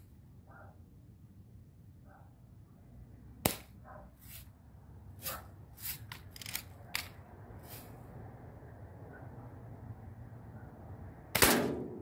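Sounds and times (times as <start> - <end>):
lever clicks and rasps: 6.0 - 7.2
bb gun shot: 11.4 - 12.0.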